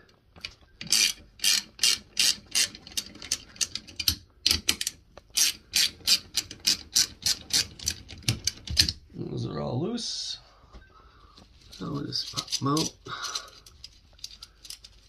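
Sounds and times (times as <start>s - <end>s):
ratchet wrench clicking: 0.9s - 8.0s.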